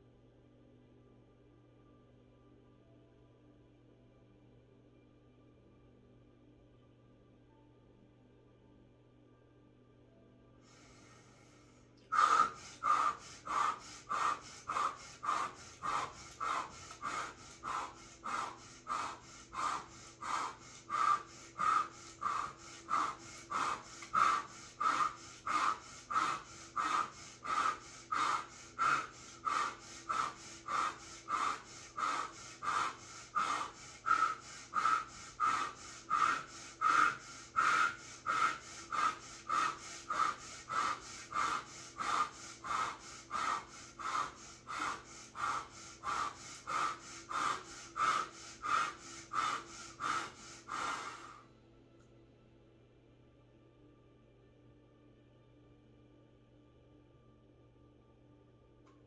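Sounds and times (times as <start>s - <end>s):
woman breathing rapidly: 10.6s - 51.5s.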